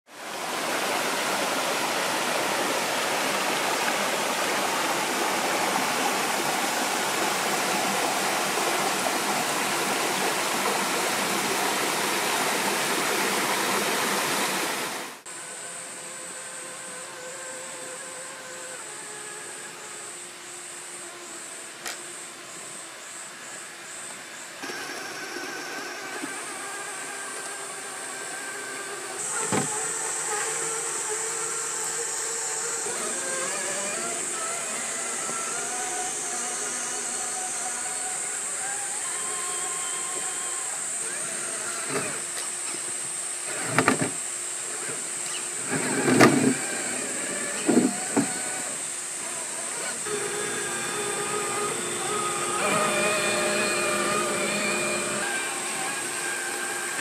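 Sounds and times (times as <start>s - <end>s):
electric motor whine: 0.1s - 57.0s
pulsing insect buzz: 0.2s - 57.0s
single click: 21.8s - 22.0s.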